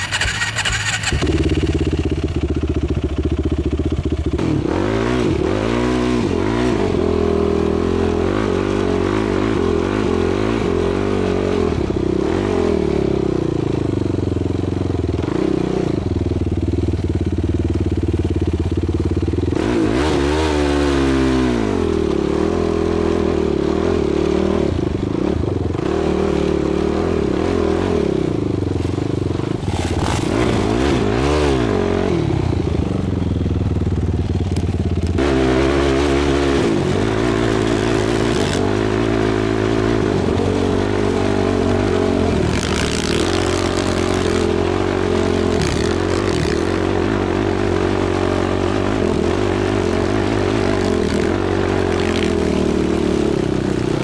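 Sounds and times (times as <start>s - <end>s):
quad engine revving: 0.0s - 54.0s.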